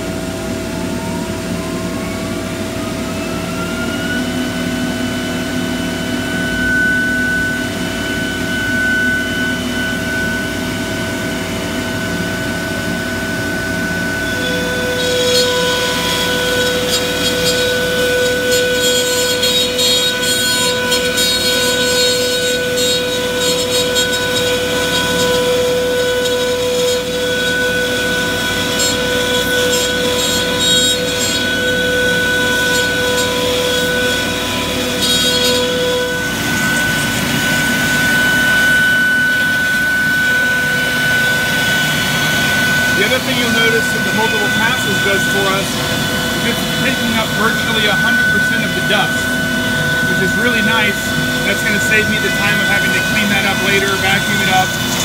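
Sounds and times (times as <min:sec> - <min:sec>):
router spindle whine: 0:00.0 - 0:55.0
vacuum pump drone: 0:00.0 - 0:55.0
router bit rasping through wood: 0:13.1 - 0:55.0.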